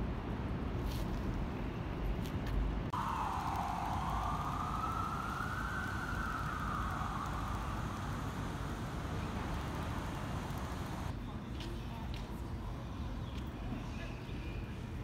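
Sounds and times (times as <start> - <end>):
low city rumble: 0.0 - 15.0
emergency vehicle siren wailing: 2.9 - 11.1.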